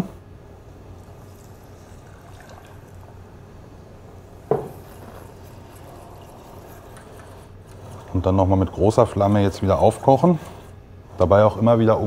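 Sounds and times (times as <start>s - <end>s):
milk pouring into saucepan: 0.9s - 3.5s, 4.5s - 10.3s
wire whisk stirring: 4.6s - 12.0s.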